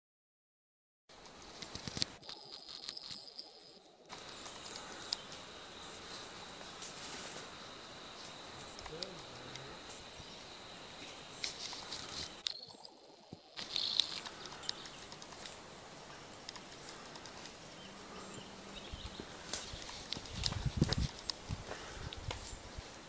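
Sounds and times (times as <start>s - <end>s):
high bird chirps: 12.0s - 15.1s.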